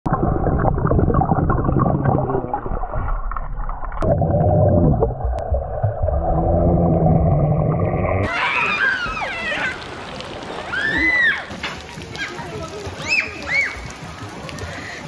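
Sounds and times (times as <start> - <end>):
underwater gurgling and bubbling: 0.1 - 8.3.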